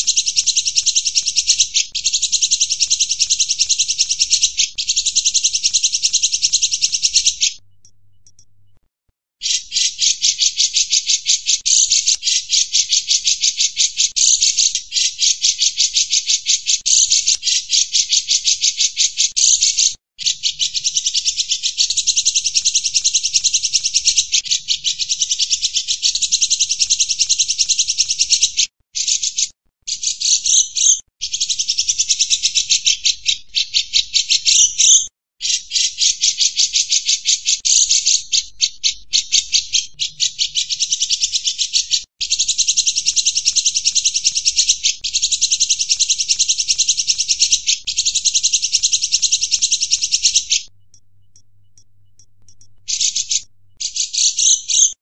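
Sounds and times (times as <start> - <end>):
bird chattering trill: 0.0 - 8.6, 9.4 - 55.0.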